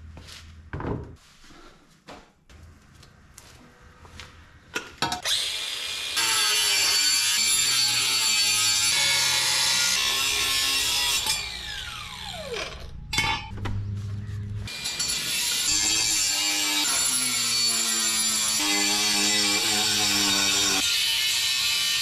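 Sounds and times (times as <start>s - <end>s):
power saw cutting metal: 5.2s - 12.9s, 14.7s - 22.0s.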